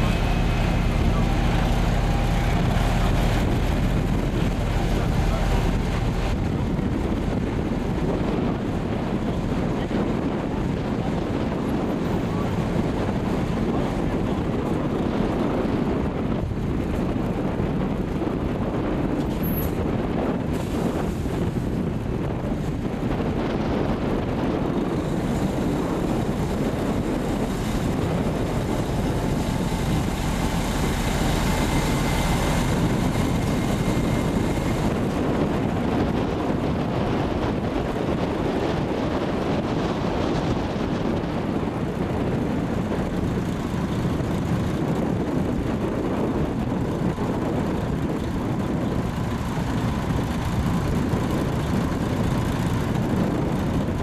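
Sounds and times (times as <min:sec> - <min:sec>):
hydraulics raising tipper: 0:00.0 - 0:07.6
diesel engine running: 0:00.0 - 0:54.0.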